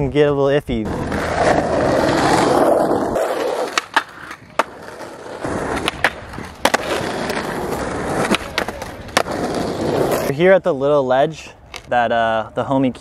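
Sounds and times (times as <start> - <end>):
skateboard wheels rolling on asphalt: 0.7 - 13.0
skateboard trucks grinding: 0.8 - 10.5
skateboard clacks: 3.1 - 10.3.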